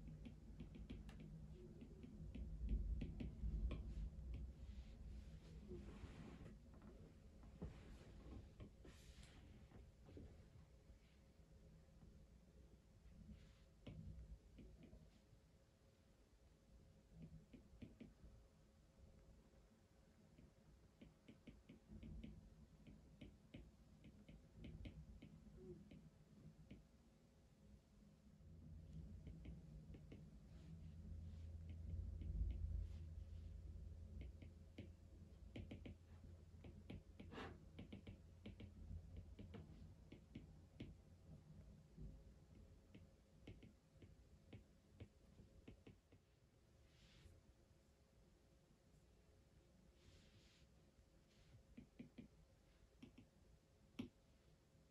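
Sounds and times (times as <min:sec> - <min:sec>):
low room hum: 0:00.0 - 0:54.9
light clicks and taps: 0:34.1 - 0:41.0.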